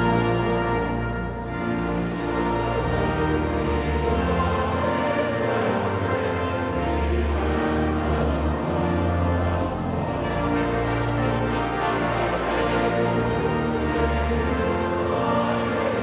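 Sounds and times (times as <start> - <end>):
pipe organ with brass chords: 0.0 - 16.0.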